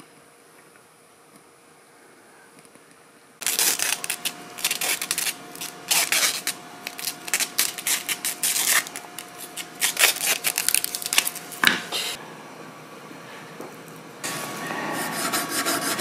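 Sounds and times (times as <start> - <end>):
plastic film crinkling: 3.4 - 11.7.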